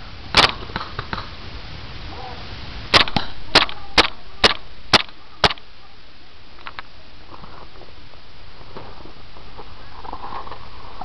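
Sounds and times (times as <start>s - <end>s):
airsoft pistol shots: 0.4s - 1.1s, 2.9s - 5.6s.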